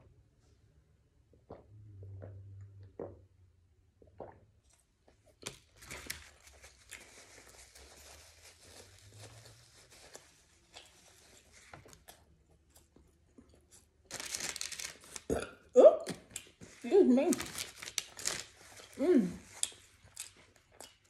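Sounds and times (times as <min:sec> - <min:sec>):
sandwich tearing and rustling: 0:05.4 - 0:12.8, 0:13.7 - 0:15.3, 0:16.3 - 0:20.7.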